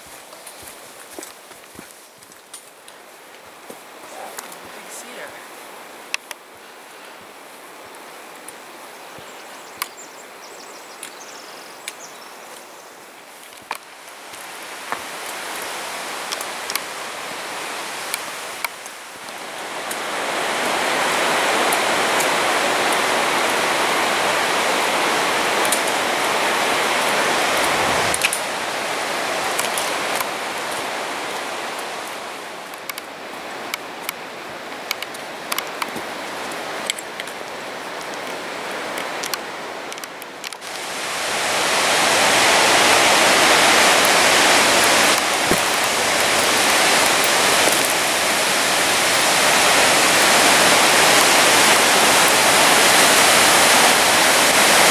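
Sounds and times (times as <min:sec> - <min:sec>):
footsteps on trail: 0:00.0 - 0:10.1, 0:10.7 - 0:17.0, 0:26.6 - 0:40.9, 0:43.0 - 0:54.9
rushing whitewater: 0:00.0 - 0:54.9.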